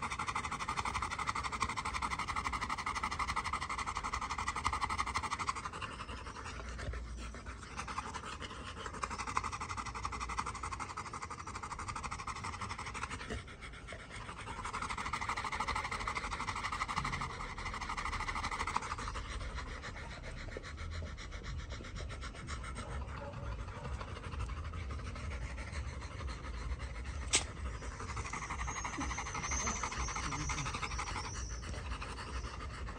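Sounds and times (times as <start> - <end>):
dogs panting: 0.0 - 32.9
sharp click: 27.3 - 27.5.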